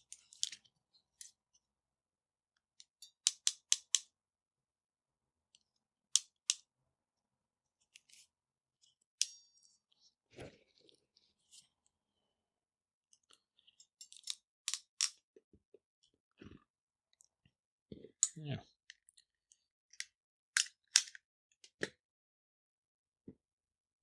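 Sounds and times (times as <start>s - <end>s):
wire crimping tool clicks: 6.2s - 6.6s.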